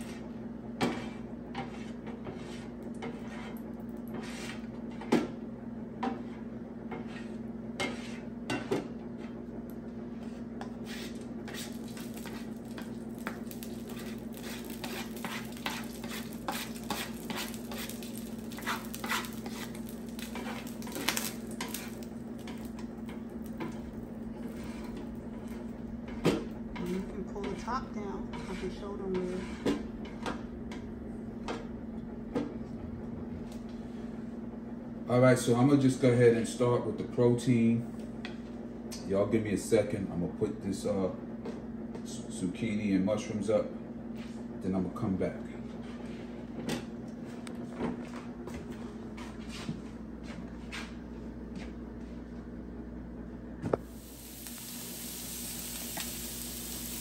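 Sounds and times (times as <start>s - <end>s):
metal spatulas scraping griddle: 0.0s - 5.2s, 6.0s - 9.4s, 10.2s - 22.7s, 23.6s - 30.4s
steady low hum: 0.0s - 57.0s
light sizzling: 10.8s - 27.6s, 53.8s - 57.0s.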